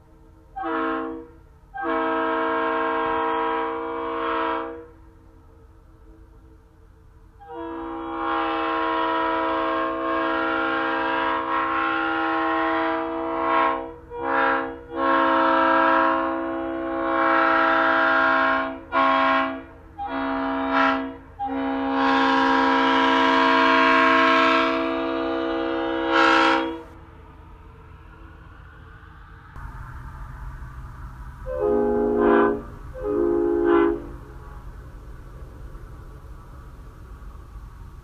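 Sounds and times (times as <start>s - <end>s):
locomotive air horn blasts: 0.5s - 5.0s, 7.4s - 27.0s, 31.4s - 35.4s.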